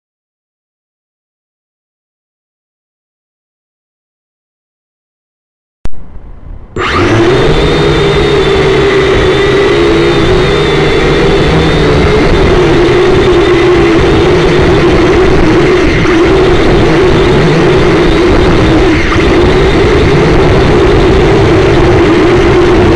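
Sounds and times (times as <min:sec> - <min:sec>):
quadcopter motors humming and whining: 0:06.8 - 0:22.9.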